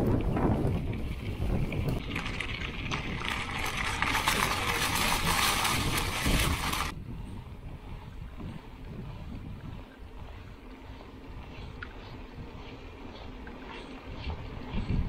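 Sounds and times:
bike tyres crunching on gravel: 0:00.0 - 0:07.0
wind rumble on microphone: 0:00.0 - 0:15.0.

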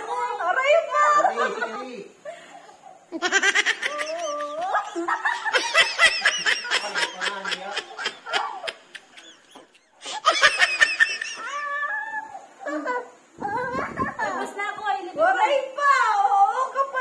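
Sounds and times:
people laughing: 0:01.2 - 0:11.9.

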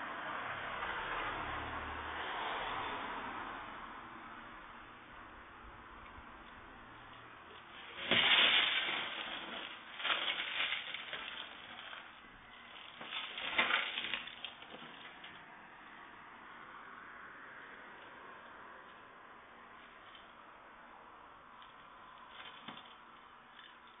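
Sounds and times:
glass breaking: 0:07.7 - 0:15.3.

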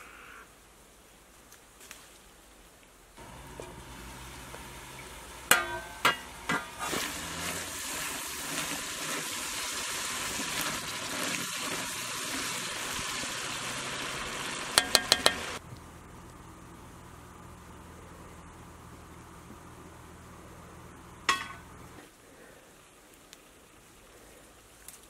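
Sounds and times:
sauce sizzling and bubbling in pan: 0:03.2 - 0:15.6.

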